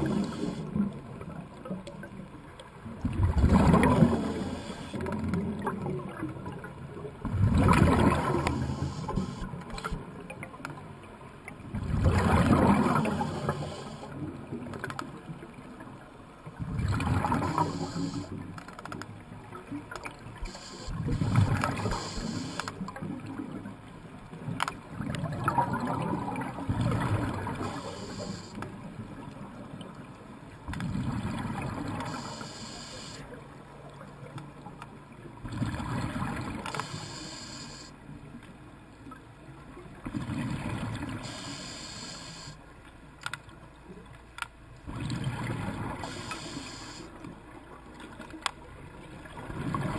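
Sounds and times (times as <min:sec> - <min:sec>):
exhaled bubbles gurgling underwater: 0:00.0 - 0:18.5, 0:19.2 - 0:30.1, 0:30.8 - 0:33.4, 0:35.4 - 0:37.8, 0:44.9 - 0:47.1, 0:48.7 - 0:49.9
diver inhaling: 0:04.0 - 0:05.0, 0:08.3 - 0:09.5, 0:13.0 - 0:14.1, 0:17.5 - 0:18.3, 0:20.4 - 0:22.7, 0:27.6 - 0:28.6, 0:32.0 - 0:33.2, 0:36.8 - 0:37.9, 0:41.2 - 0:42.6, 0:46.0 - 0:47.1.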